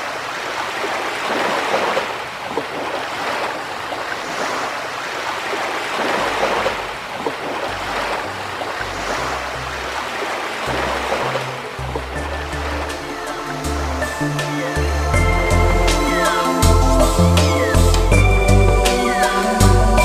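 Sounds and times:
ocean surf washing: 0.0s - 20.0s
low synth bass notes: 7.6s - 10.1s, 10.7s - 20.0s.

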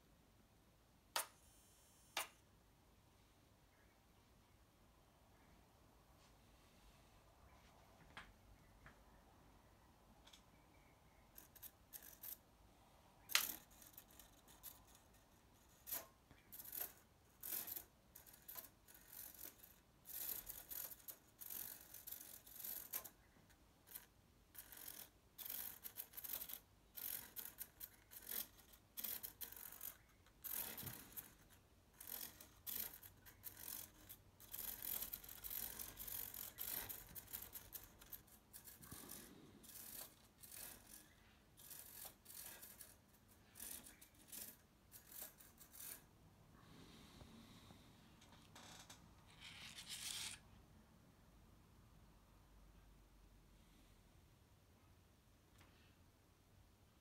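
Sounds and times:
small motor and gears whirring: 15.8s - 23.1s, 23.9s - 46.0s, 48.6s - 50.4s.

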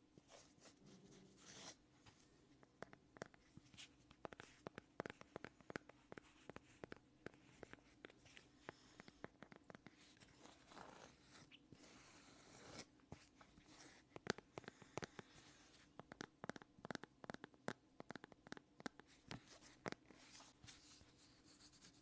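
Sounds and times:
soft rubbing on plastic: 19.0s - 22.0s.

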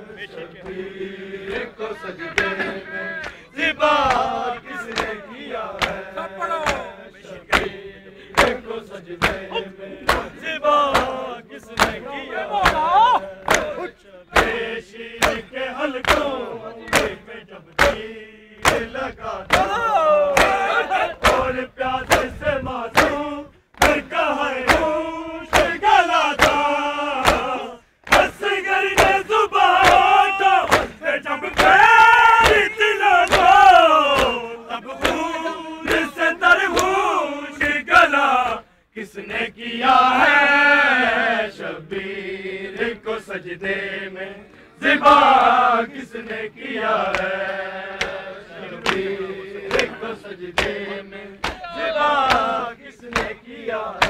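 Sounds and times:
men chanting in unison: 0.0s - 54.0s
chest-beating slaps: 4.0s - 5.2s, 6.6s - 6.9s, 8.4s - 8.6s, 9.2s - 11.2s, 11.8s - 12.0s, 12.6s - 14.6s, 15.2s - 17.2s, 17.8s - 22.4s, 23.0s - 23.2s, 23.8s - 25.8s, 26.4s - 31.8s, 32.4s - 34.4s, 48.0s - 48.2s, 48.8s - 50.0s, 50.6s - 53.4s.

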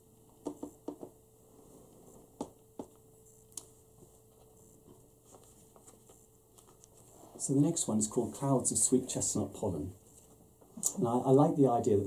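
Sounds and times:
faint steady hum: 0.0s - 12.0s
paper crinkling and tapping: 0.2s - 1.1s, 2.4s - 7.1s.

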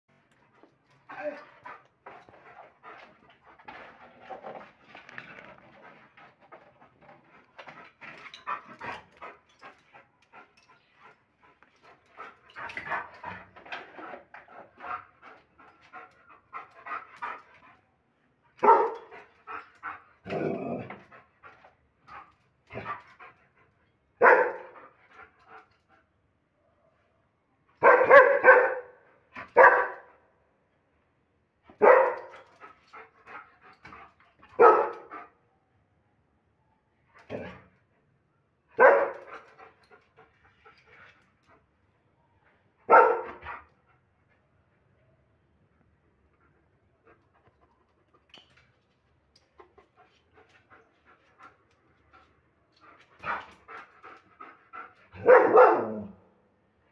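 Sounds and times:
dog panting: 0.4s - 4.8s, 5.4s - 17.9s, 49.4s - 55.4s
dog barking: 18.6s - 19.1s, 24.2s - 24.8s, 27.8s - 29.0s, 29.6s - 30.1s, 31.8s - 32.3s, 34.6s - 35.1s, 38.8s - 39.2s, 42.9s - 43.4s, 55.2s - 56.2s.

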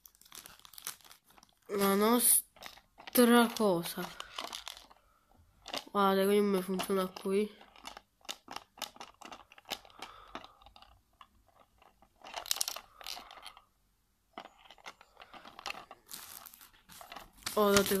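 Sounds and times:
crinkly rustles: 0.0s - 13.6s, 14.3s - 18.0s.

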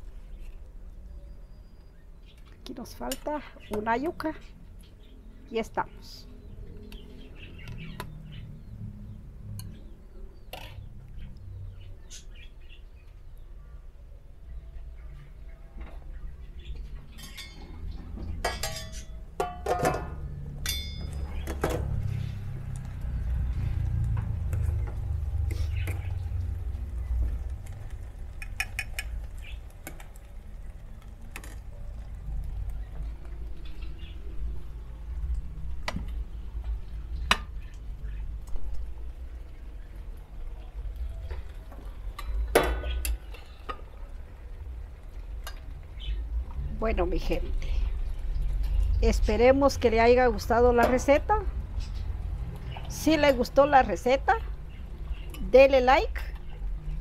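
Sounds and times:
dishes and utensils clinking: 17.1s - 21.8s.

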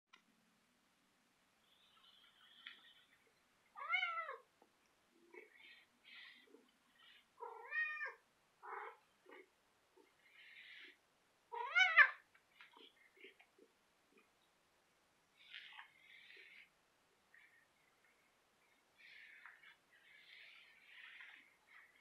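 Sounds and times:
cat meowing: 3.8s - 4.4s, 7.4s - 9.0s, 11.5s - 12.2s.

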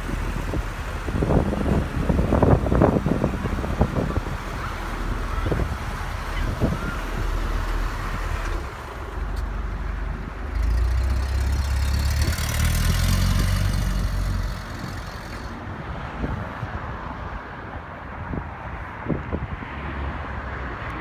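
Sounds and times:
car engine accelerating: 0.0s - 15.6s.

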